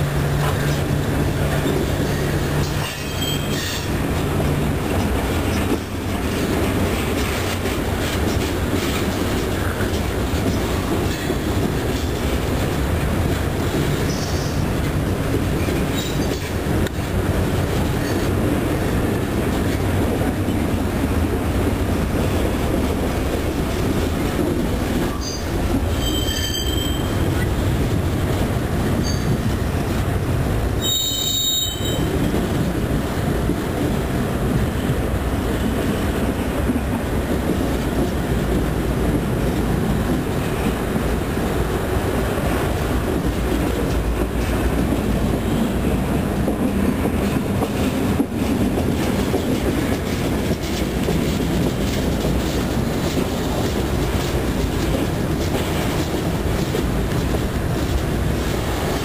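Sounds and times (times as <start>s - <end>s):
steel wheels rumbling on track: 0.0s - 59.0s
high-pitched wheel squeals: 25.2s - 27.2s, 30.8s - 32.0s.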